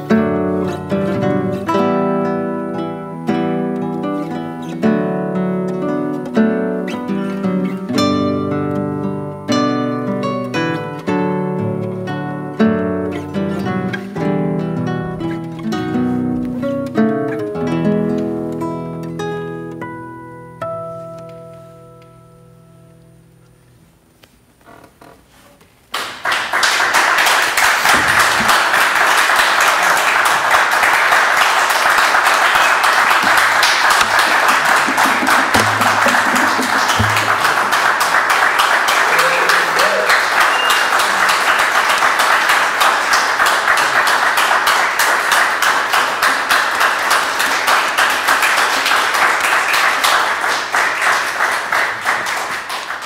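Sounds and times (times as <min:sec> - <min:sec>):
audience applauding: 0:25.9 - 0:53.0.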